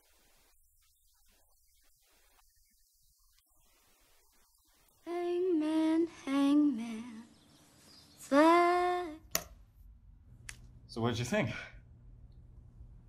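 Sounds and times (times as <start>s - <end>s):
sharp click: 9.3s - 9.6s.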